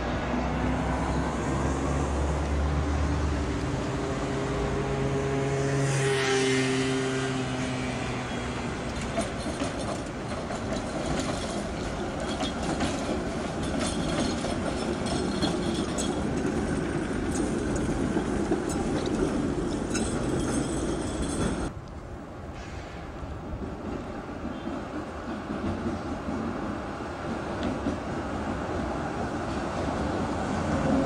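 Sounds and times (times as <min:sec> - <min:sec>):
car passing: 0:00.0 - 0:09.0
tram wheels rumbling on rails: 0:00.0 - 0:31.0.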